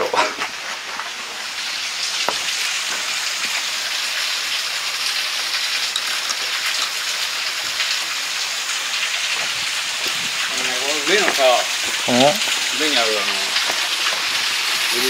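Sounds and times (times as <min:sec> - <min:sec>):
waterfall pouring onto rocks: 0:00.0 - 0:15.0.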